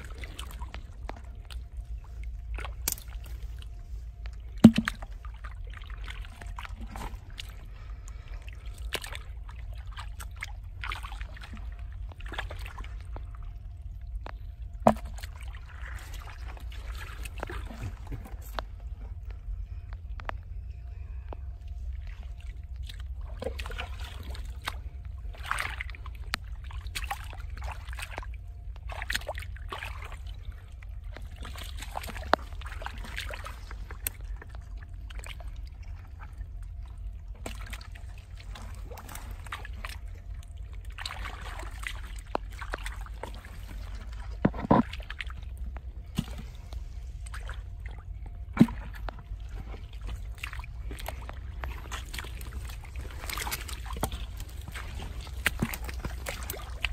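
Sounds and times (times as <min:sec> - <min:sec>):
steady low rumble: 0:00.0 - 0:56.9
hands splashing in muddy water: 0:22.0 - 0:35.8, 0:36.8 - 0:56.9.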